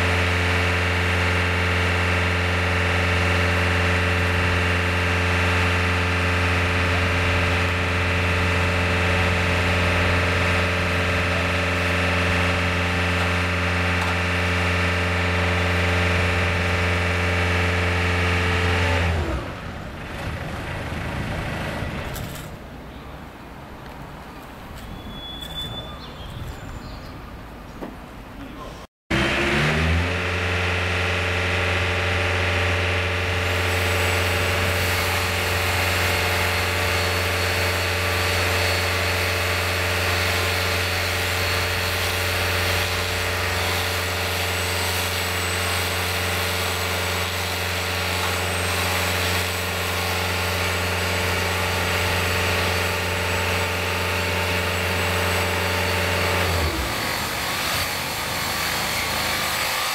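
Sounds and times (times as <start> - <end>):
motor running: 29.1 - 59.9.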